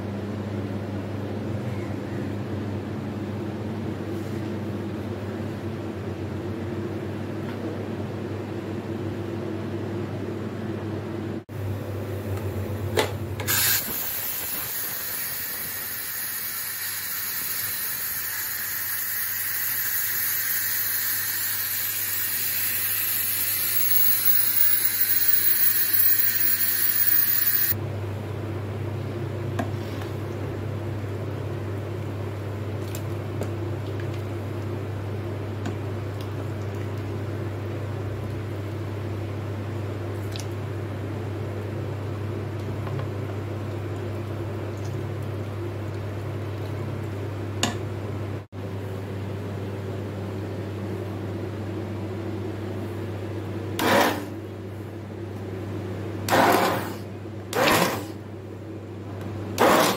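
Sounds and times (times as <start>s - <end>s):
pressure cooker steam hissing: 13.4s - 27.8s.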